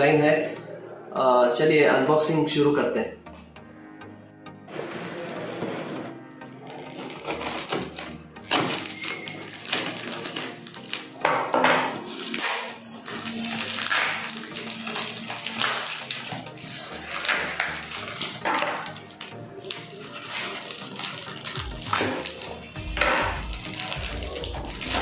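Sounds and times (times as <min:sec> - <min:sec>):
tape and cardboard ripping: 0:06.8 - 0:25.0.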